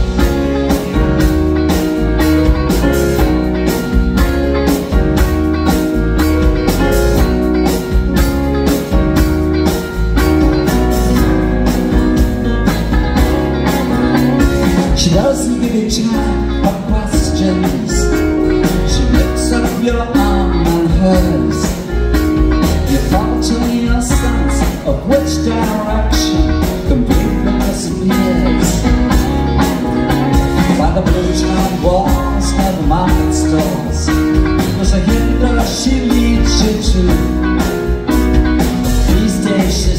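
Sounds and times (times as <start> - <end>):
soft rock band playing: 0.0 - 39.9
man singing: 14.6 - 22.0, 22.6 - 29.2, 30.5 - 37.8, 38.9 - 39.9.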